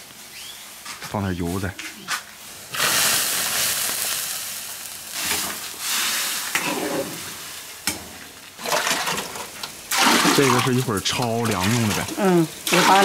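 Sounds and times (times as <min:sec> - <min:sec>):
beans hissing in boiling water: 0:00.0 - 0:13.0.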